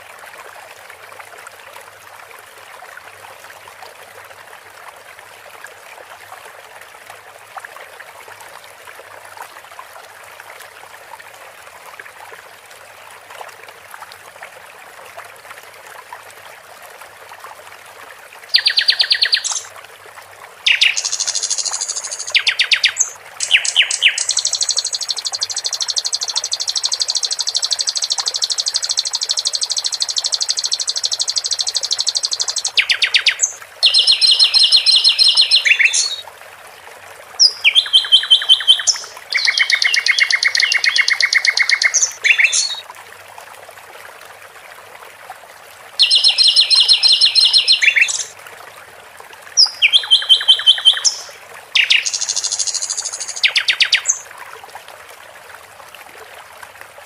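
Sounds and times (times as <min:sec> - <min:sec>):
trickling water: 0:00.0 - 0:57.0
bird singing fast trills: 0:18.6 - 0:19.7, 0:20.7 - 0:36.2, 0:37.4 - 0:42.8, 0:46.0 - 0:48.3, 0:49.6 - 0:54.2.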